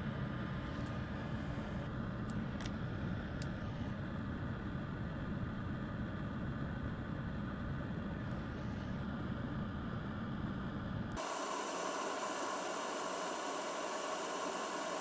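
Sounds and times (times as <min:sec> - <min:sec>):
low rumbling background noise: 0:00.0 - 0:11.2.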